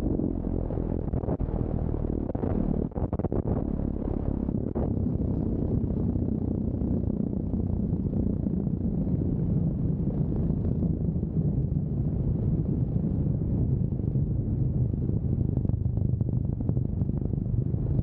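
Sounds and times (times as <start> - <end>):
biplane engine and propeller: 0.0 - 18.0
wind buffeting microphone: 0.0 - 18.0.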